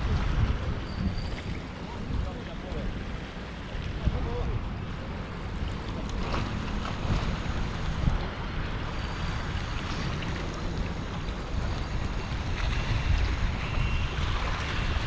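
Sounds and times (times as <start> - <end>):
wind rumble on microphone: 0.0 - 15.0
water washing against rocky shore: 4.9 - 15.0.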